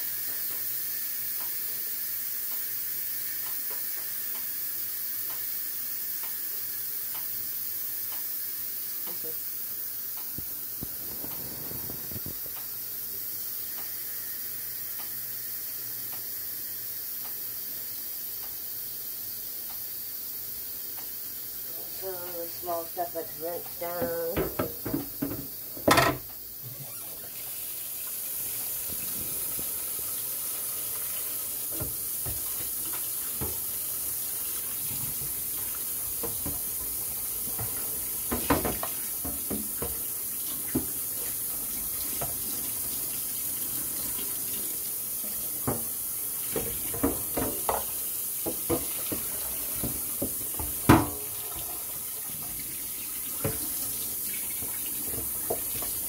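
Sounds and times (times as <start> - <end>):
tap running into metal sink: 23.8 - 26.4, 31.7 - 33.7, 34.6 - 42.9, 45.4 - 56.0
plastic parts knocking against sink: 23.9 - 26.3, 36.2 - 40.0.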